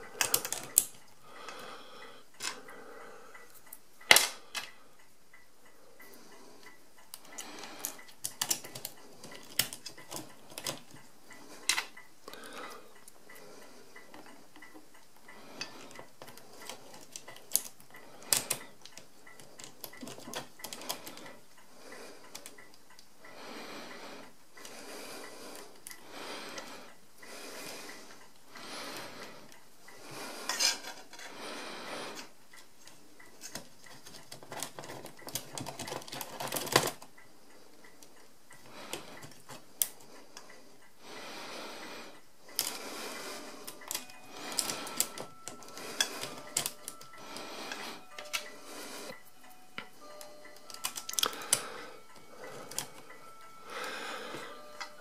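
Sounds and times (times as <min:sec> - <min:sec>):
metal parts clicking: 0:00.2 - 0:01.0, 0:07.2 - 0:11.0.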